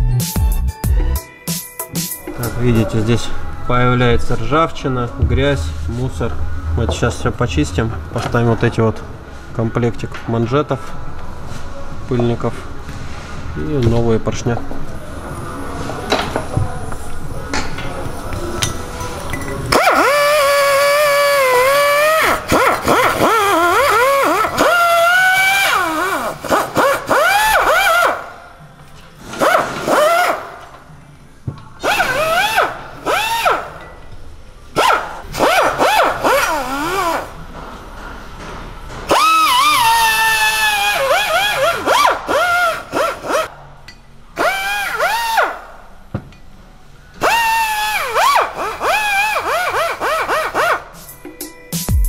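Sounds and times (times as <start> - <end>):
pneumatic die grinder whine: 19.7 - 28.3, 29.2 - 30.8, 39.1 - 43.5, 47.2 - 50.9.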